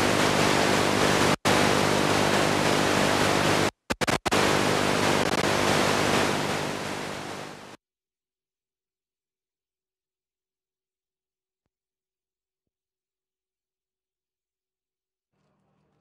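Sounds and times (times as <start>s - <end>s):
faint hum: 0.0s - 7.8s
static hiss: 0.0s - 7.8s.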